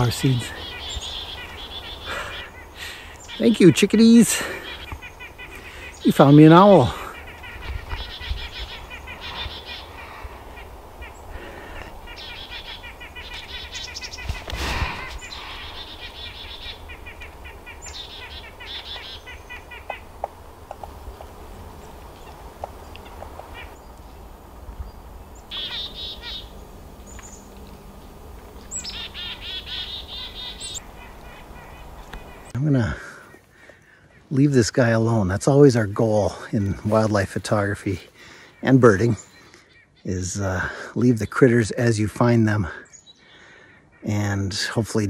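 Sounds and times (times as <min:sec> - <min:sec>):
chickadees calling: 0:00.0 - 0:41.6, 0:42.5 - 0:44.7.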